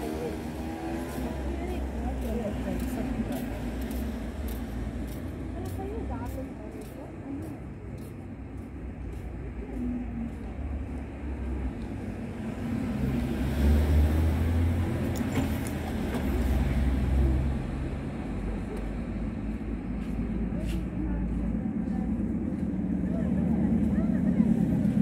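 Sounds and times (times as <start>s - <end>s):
car passing by: 0.0s - 6.1s, 11.4s - 19.2s
van passing by: 0.0s - 6.6s, 11.1s - 25.0s
background traffic: 0.0s - 25.0s.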